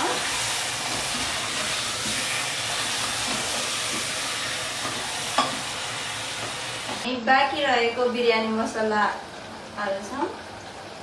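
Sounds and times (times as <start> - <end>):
food sizzling in a pot: 0.0 - 10.4
wooden spoon stirring: 0.2 - 7.0.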